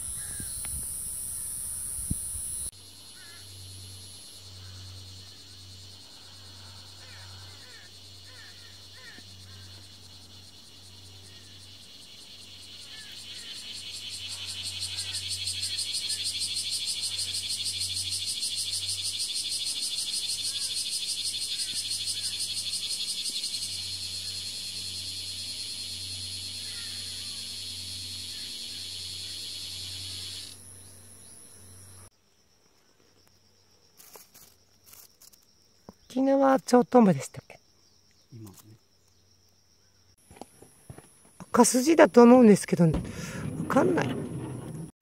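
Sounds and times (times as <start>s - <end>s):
cicada buzzing: 0.0s - 32.1s.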